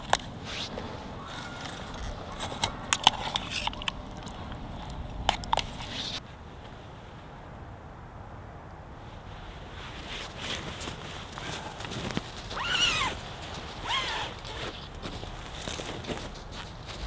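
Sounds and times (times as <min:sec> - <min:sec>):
metal spoon scraping pot: 0:01.6 - 0:06.2.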